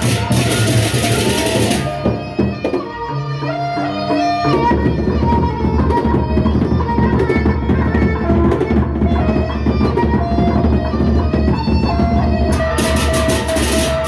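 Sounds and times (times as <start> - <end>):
large barrel drums: 0.0 - 3.1, 4.5 - 14.0.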